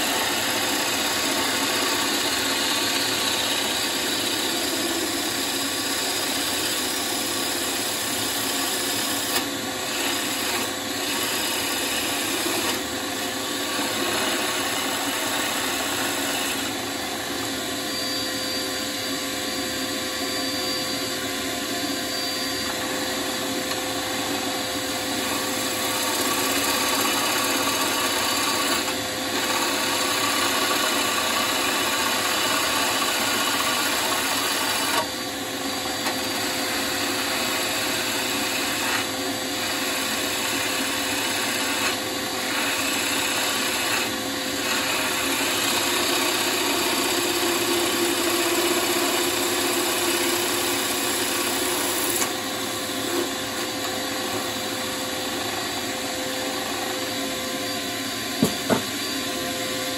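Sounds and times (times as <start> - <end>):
lathe tool shaving wood: 0.0 - 20.6, 21.2 - 59.2.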